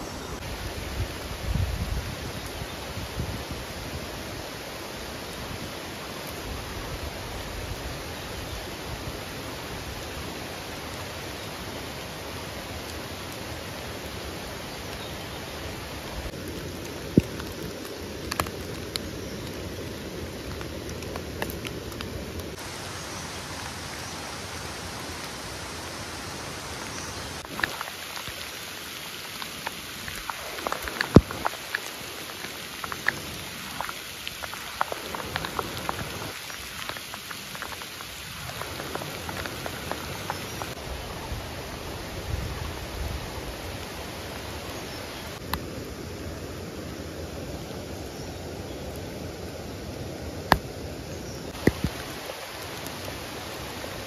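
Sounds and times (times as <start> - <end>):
steady hiss: 0.0 - 54.0
stems and dry leaves crackling: 10.9 - 45.8, 46.5 - 54.0.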